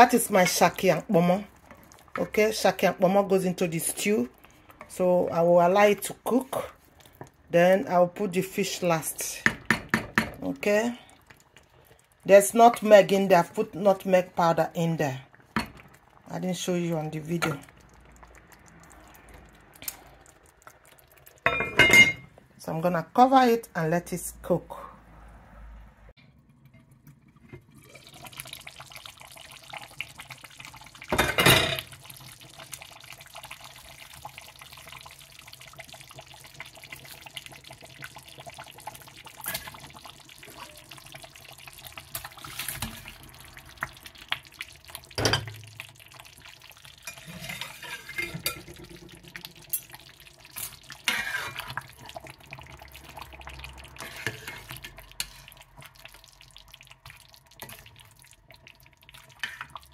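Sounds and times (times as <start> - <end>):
stew bubbling: 0.0 - 22.4, 26.8 - 59.9
metal knocking on pot: 9.4 - 10.4.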